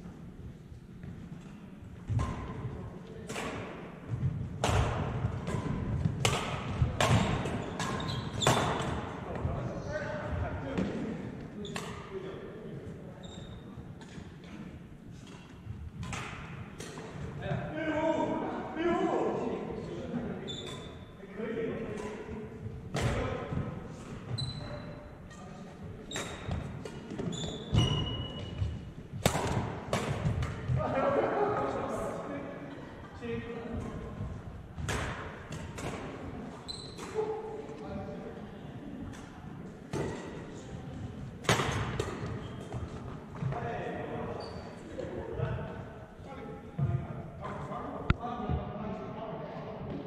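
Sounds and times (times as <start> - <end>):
rackets striking shuttlecock: 3.2 - 3.8, 4.6 - 9.4, 15.2 - 17.2, 26.1 - 28.5, 29.2 - 30.8, 34.8 - 36.2, 36.9 - 37.3, 41.4 - 43.0
sneakers squeaking on wooden floor: 7.1 - 9.0, 13.2 - 13.8, 20.5 - 21.1, 24.3 - 28.9, 36.6 - 37.4, 42.2 - 43.6, 44.3 - 44.9.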